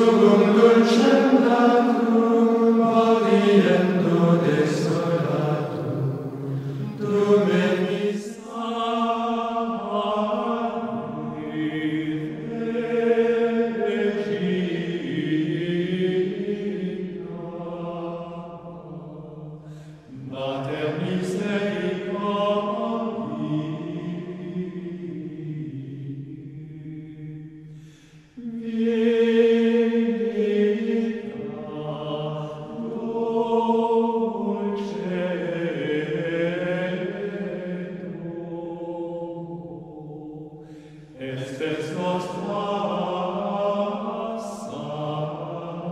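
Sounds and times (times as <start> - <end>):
person chanting long notes: 0.0 - 8.7.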